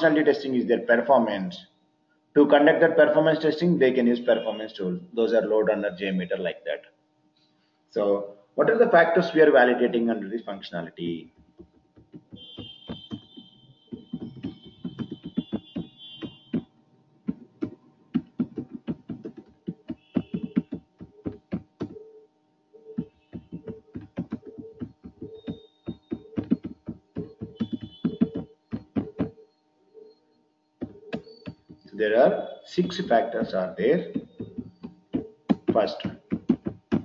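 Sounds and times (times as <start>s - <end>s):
faint electrical hum: 0.0s - 37.0s
keyboard typing clicks: 11.4s - 16.6s, 17.3s - 22.1s, 22.9s - 29.4s, 30.8s - 32.0s, 34.0s - 37.0s.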